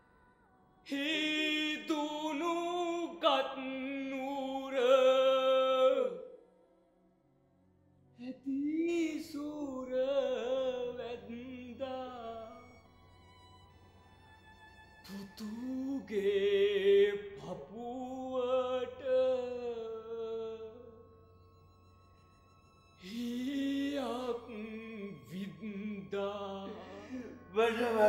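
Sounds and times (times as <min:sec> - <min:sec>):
person singing unaccompanied: 0:23.0 - 0:28.0.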